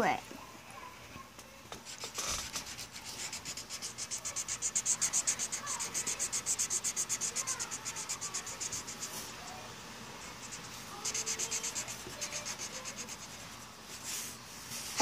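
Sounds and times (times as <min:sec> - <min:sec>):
marker scribbling on paper: 0:01.8 - 0:09.6, 0:10.2 - 0:13.6.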